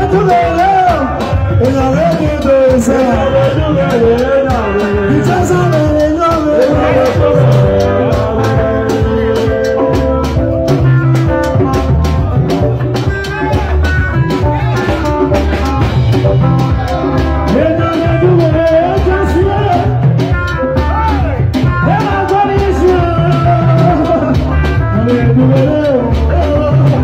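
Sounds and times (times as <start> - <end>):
man singing into a microphone: 0.0 - 11.0, 16.4 - 27.0
dance band music: 0.0 - 27.0
steady drum beat: 0.0 - 27.0.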